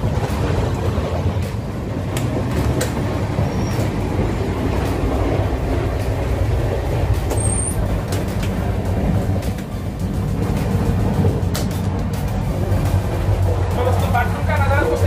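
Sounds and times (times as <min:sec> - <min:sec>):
train rumbling: 0:00.0 - 0:15.0.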